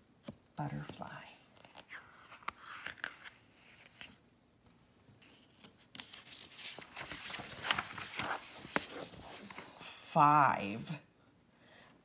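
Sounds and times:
paper page rustling: 0:01.5 - 0:04.2, 0:05.2 - 0:09.9.

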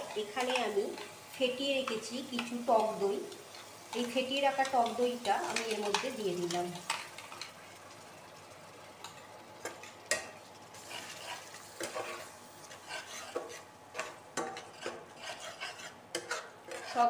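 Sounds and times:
faint sizzle: 0:00.0 - 0:17.0
metal spatula scraping pan: 0:09.8 - 0:17.0.

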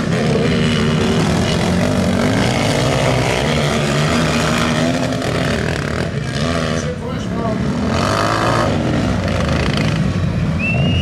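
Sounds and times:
quad engines revving: 0:00.0 - 0:11.0.

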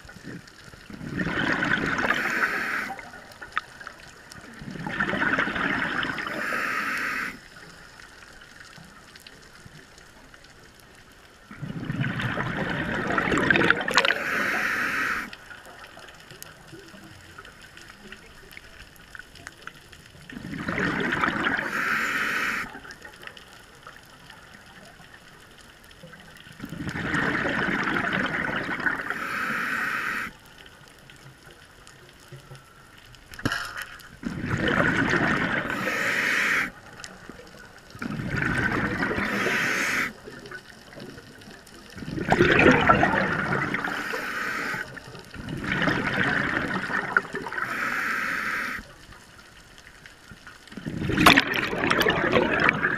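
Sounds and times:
scuba regulator breathing bubbles: 0:00.3 - 0:03.7, 0:04.5 - 0:07.5, 0:11.5 - 0:15.5, 0:20.3 - 0:22.8, 0:26.6 - 0:30.4, 0:33.5 - 0:36.9, 0:38.0 - 0:40.5, 0:42.0 - 0:48.9, 0:50.8 - 0:52.9.

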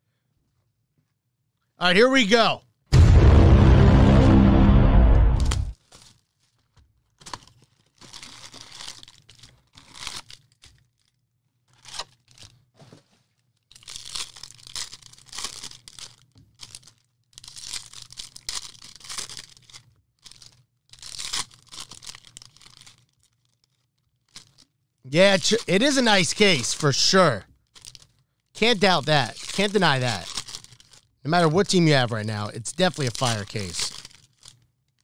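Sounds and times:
packaging being torn open: 0:05.4 - 0:12.5, 0:13.7 - 0:26.0, 0:28.8 - 0:31.1, 0:32.7 - 0:35.0
packaging crinkling: 0:05.8 - 0:24.7, 0:27.6 - 0:31.2, 0:32.7 - 0:35.0.

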